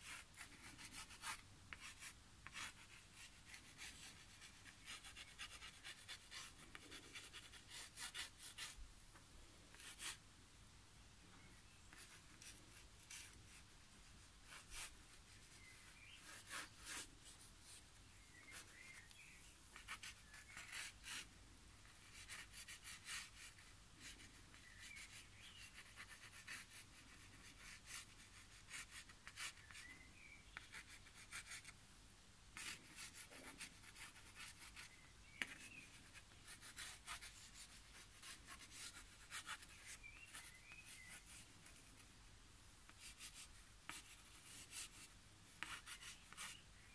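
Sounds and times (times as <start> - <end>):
pen scratching on paper: 0.0 - 8.8, 11.9 - 13.6, 14.4 - 17.1, 19.7 - 29.8, 32.6 - 42.0, 42.9 - 46.6.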